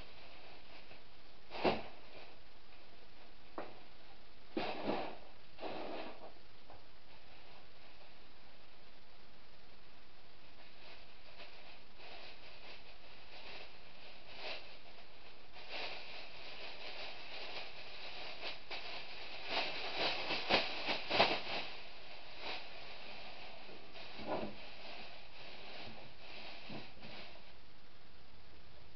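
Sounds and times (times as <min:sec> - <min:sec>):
steady hiss: 0:00.0 - 0:28.9
plastic bag rustling and crackling: 0:10.4 - 0:27.6.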